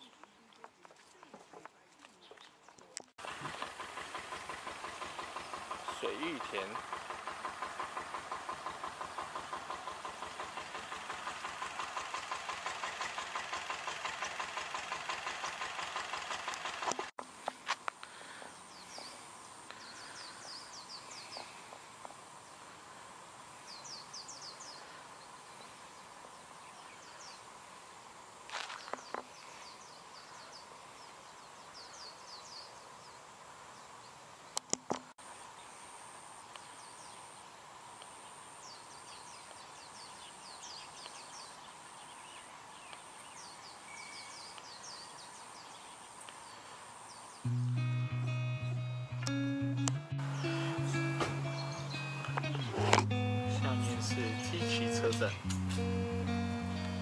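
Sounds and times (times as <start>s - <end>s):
rapid even pulsing: 3.2s - 17.1s
high bird chirps: 50.2s - 52.7s.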